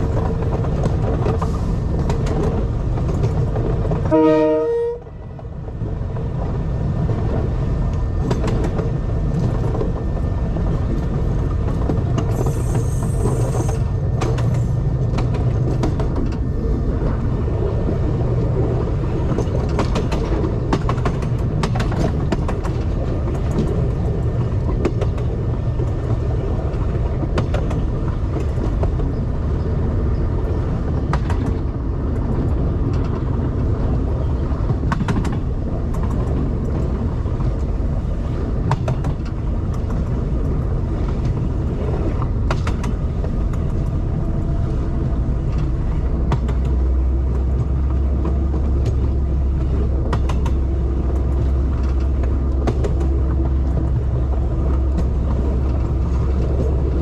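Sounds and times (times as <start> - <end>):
vehicle engine rumble: 0.0 - 57.0.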